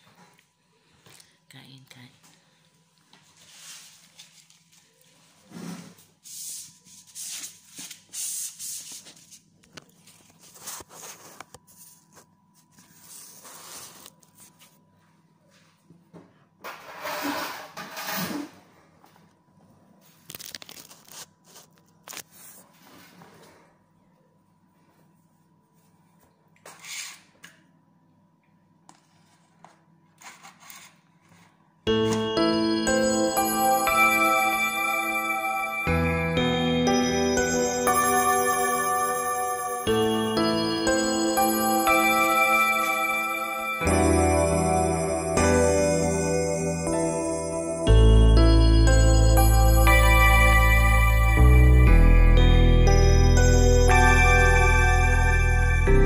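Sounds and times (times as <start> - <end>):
paper wrapper crinkling: 20.1 - 22.6.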